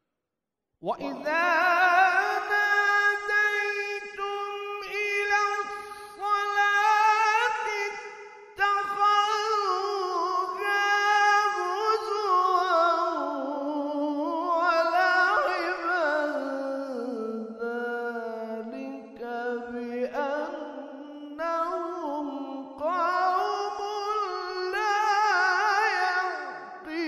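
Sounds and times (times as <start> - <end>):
man reciting melodically: 0.8 - 27.0.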